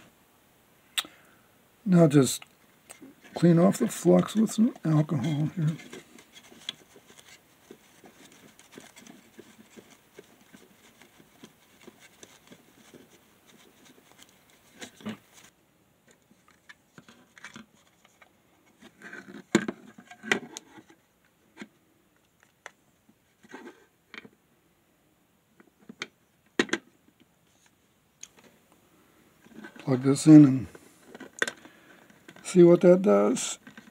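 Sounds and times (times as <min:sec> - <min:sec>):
rapid scratchy rubbing: 0:03.1 - 0:15.5.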